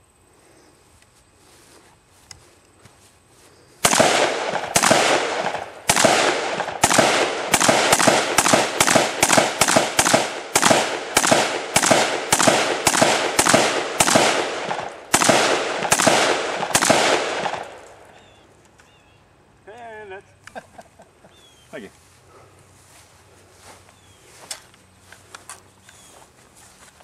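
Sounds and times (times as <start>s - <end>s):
rifle shots with echo: 3.8s - 18.1s.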